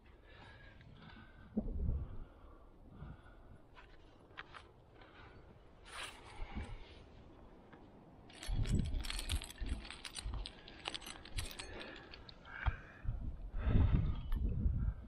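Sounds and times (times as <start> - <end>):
climbing gear jangling and clinking: 8.2 - 12.6.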